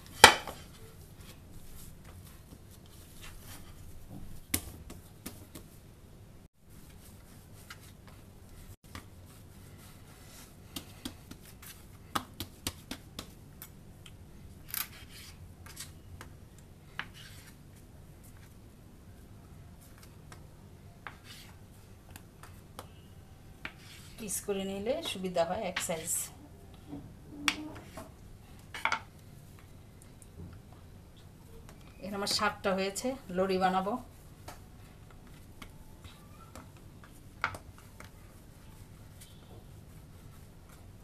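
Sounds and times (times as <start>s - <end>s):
dough kneaded on wooden board: 6.7s - 13.4s.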